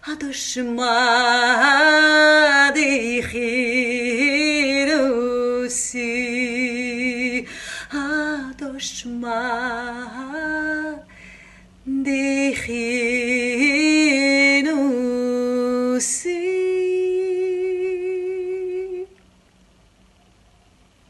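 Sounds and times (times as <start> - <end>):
woman singing unaccompanied: 0.0 - 11.2, 11.8 - 19.2
singer breathing: 7.4 - 8.0, 11.1 - 11.8.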